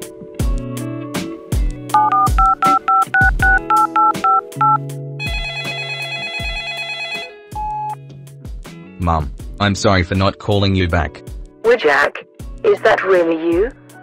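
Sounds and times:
background music with beat: 0.0 - 6.7, 7.4 - 9.6
touch-tone beeps: 2.0 - 4.8, 7.6 - 8.0
phone line ringing: 2.0 - 8.0.

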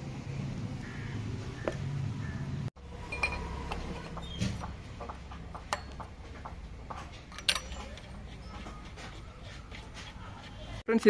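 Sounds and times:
metal tools clinking: 3.0 - 4.8, 5.6 - 9.5.

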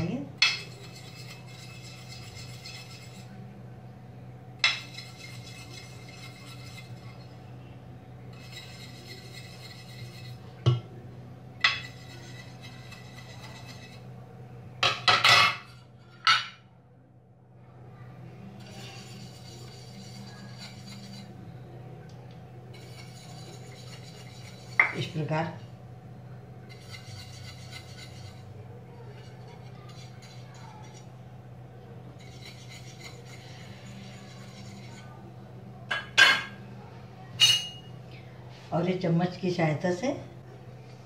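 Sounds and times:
brush strokes on metal: 0.6 - 3.5, 4.7 - 7.4, 8.2 - 10.6, 11.7 - 14.1, 18.4 - 21.7, 22.7 - 25.2, 26.3 - 31.2, 32.0 - 35.4.

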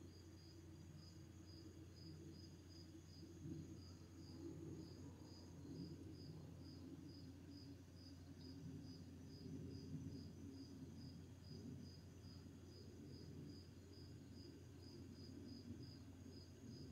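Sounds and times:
cricket chirping: 0.0 - 16.9
high insect hum: 0.0 - 16.9.

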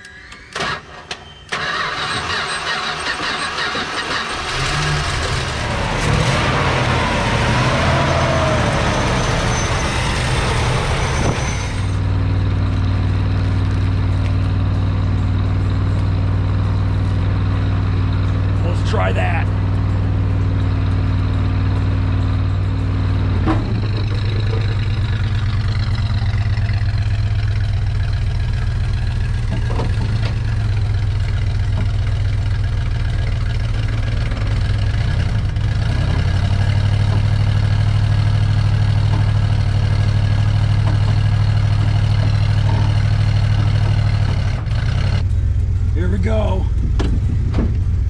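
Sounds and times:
car engine idling: 10.7 - 48.0.

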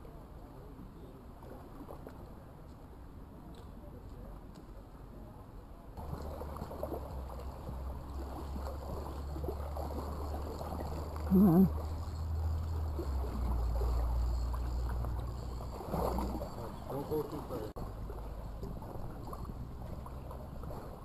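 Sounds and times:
creek water running: 6.0 - 21.0.

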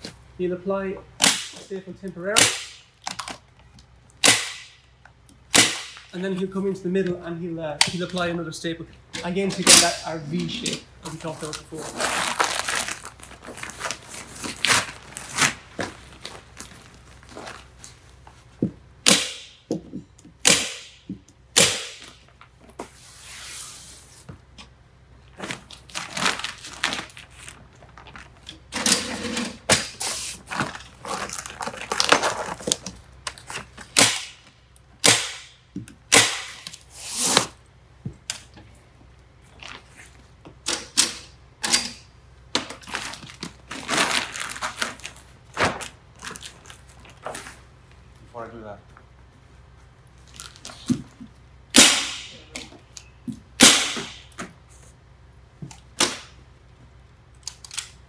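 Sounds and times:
membrane sheet crinkling: 11.1 - 18.1, 25.3 - 28.5, 30.4 - 33.8, 42.8 - 47.6.

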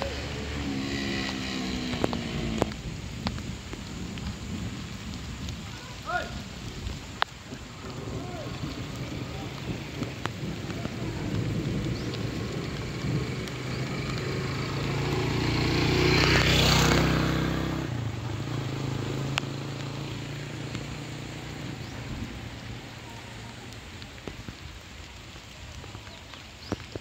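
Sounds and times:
vehicle passing by: 0.0 - 2.8, 7.8 - 23.3
rain falling on water: 0.0 - 27.0.

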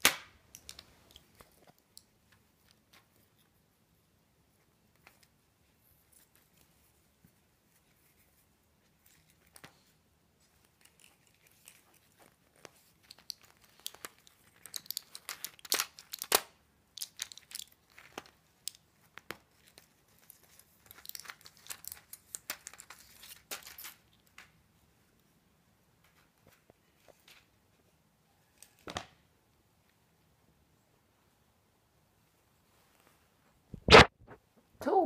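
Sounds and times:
cat chewing plastic packaging: 9.2 - 24.2
plastic crinkling clicks: 10.7 - 24.5.

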